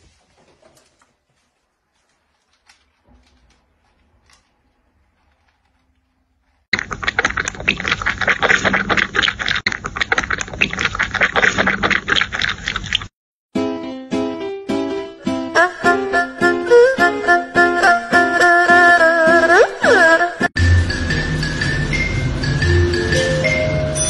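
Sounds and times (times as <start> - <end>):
kitten lapping milk: 6.8 - 13.1.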